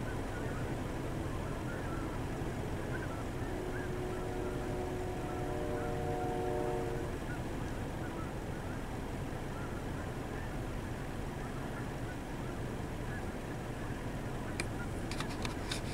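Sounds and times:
droning tone: 0.0 - 8.8
geese honking: 0.2 - 8.8.

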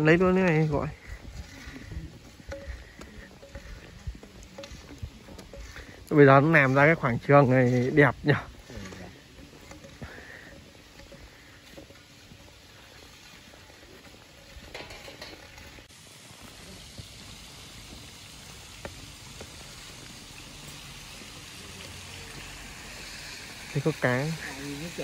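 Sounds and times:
faint steady hiss: 0.0 - 25.0.

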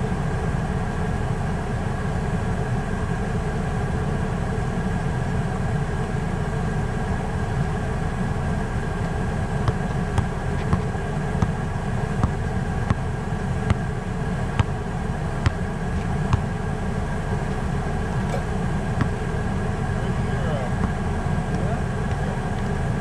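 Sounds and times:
low rumble with faint hum: 0.0 - 23.0
basketball bouncing on asphalt: 9.0 - 19.5, 20.8 - 22.8.

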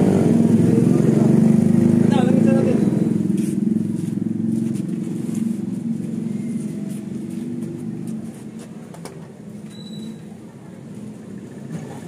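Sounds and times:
vehicle engine running: 0.0 - 8.9.

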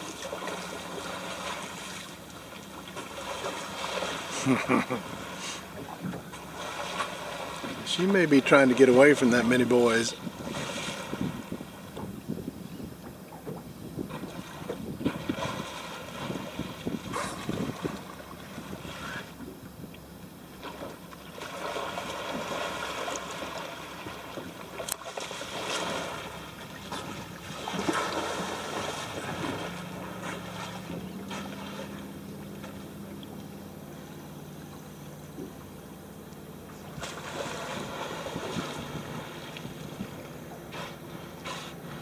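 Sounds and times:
low motor hum: 0.0 - 42.0
water splashing around boat: 0.0 - 42.0
wind: 0.0 - 42.0.

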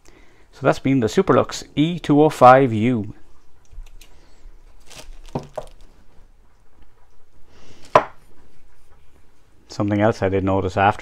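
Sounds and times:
soft handling knocks and rustles: 4.8 - 9.6.

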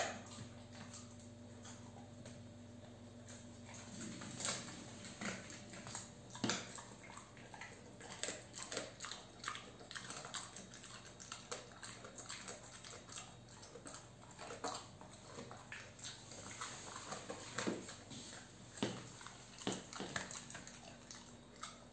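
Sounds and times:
dog crunching a chew treat: 0.0 - 21.9
faint low hum: 0.0 - 21.9.

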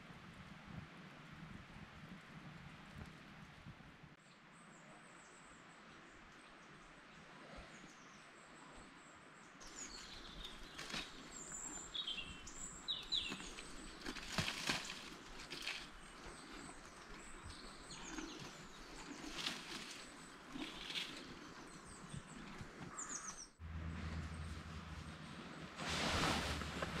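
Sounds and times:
small birds chirping: 7.7 - 23.6.

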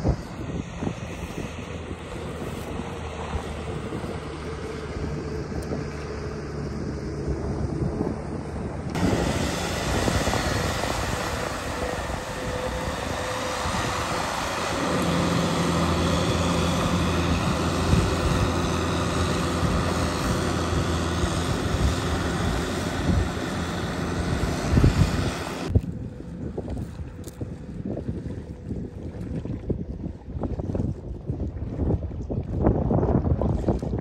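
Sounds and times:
tractor engine running: 0.0 - 25.7
mud and water noise: 0.0 - 34.0.

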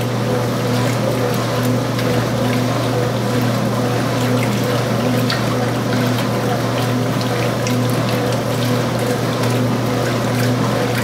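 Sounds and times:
washing machine motor hum: 0.0 - 11.0
water sloshing in tub: 0.0 - 11.0.

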